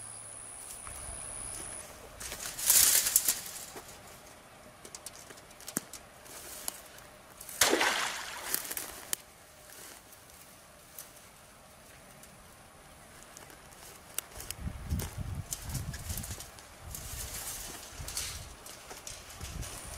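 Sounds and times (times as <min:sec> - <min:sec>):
rustling through grass: 0:00.6 - 0:04.4, 0:06.2 - 0:19.9
splashing in water: 0:07.6 - 0:08.9.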